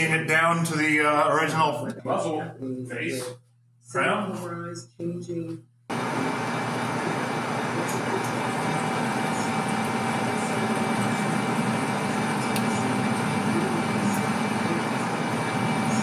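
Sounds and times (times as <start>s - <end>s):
metal lathe humming with whine: 5.9s - 16.0s.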